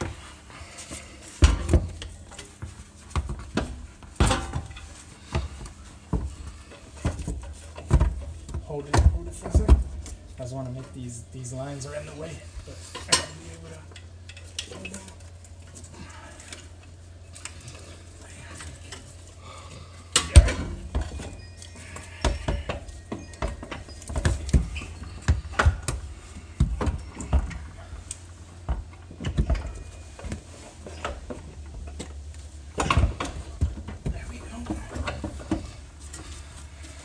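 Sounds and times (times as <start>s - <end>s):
steady low hum: 0.0s - 37.0s
metal clunks and knocks: 28.6s - 35.8s.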